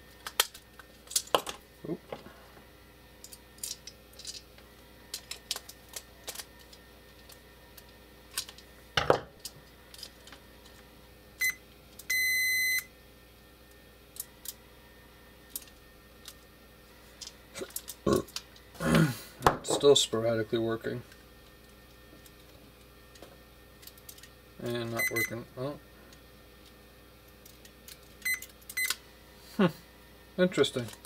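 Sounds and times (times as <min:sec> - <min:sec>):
multimeter beeping: 0:11.4 - 0:12.9, 0:24.9 - 0:25.4, 0:28.2 - 0:29.0.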